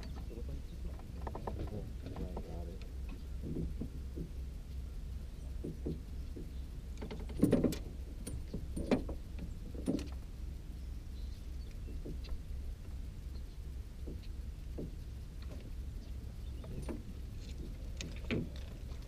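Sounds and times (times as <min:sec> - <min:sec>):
steady low hum: 0:00.0 - 0:19.0
fishing gear knocking and clattering: 0:00.9 - 0:04.4, 0:05.6 - 0:10.2, 0:16.6 - 0:19.0.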